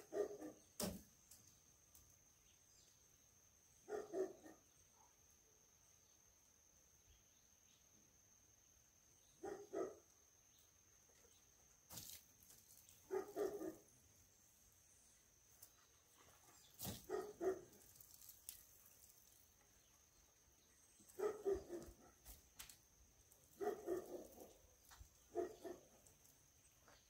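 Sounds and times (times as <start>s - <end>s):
dog barking: 0.0s - 0.6s, 3.9s - 5.1s, 9.4s - 10.0s, 13.1s - 13.9s, 17.0s - 17.7s, 21.2s - 22.2s, 23.6s - 24.6s, 25.3s - 25.9s.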